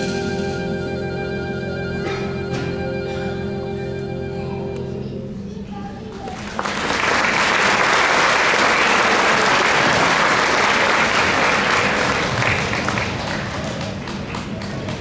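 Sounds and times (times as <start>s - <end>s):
audience applauding: 6.2s - 15.0s.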